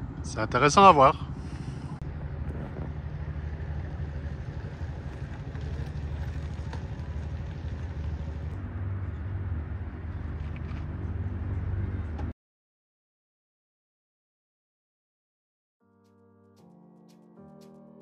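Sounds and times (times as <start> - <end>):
motor vehicles rumbling: 0.0 - 12.4.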